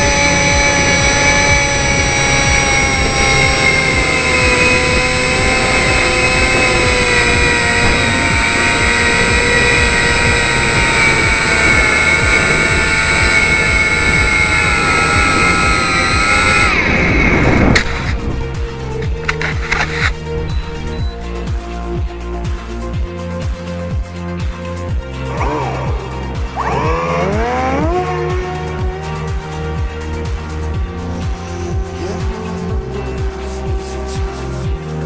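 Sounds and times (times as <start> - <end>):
wind rushing over microphone: 0.0 - 22.6
electric motor and propeller whining: 0.0 - 35.0.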